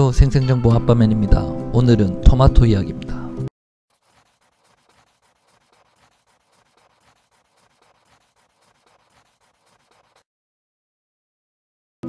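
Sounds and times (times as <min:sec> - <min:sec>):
pencil scratching on paper: 0:03.9 - 0:10.3.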